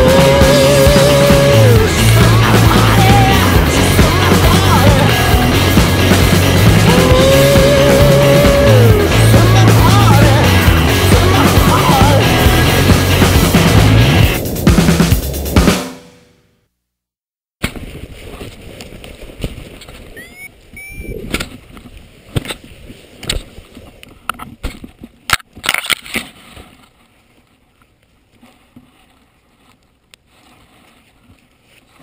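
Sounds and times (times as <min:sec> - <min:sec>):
background music: 0:00.0 - 0:16.3.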